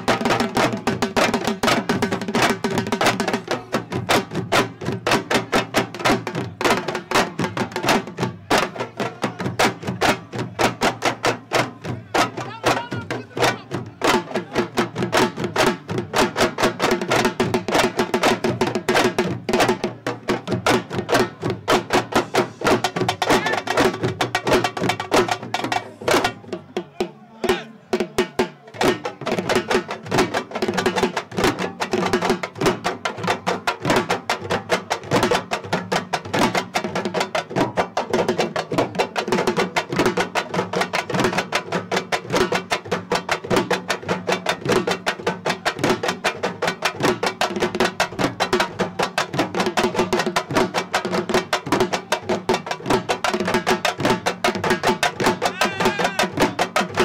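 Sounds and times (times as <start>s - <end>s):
fast loud drumming: 0.0s - 57.0s
voices: 8.5s - 10.7s, 11.6s - 14.9s, 22.2s - 23.8s, 25.5s - 28.9s, 55.3s - 56.6s.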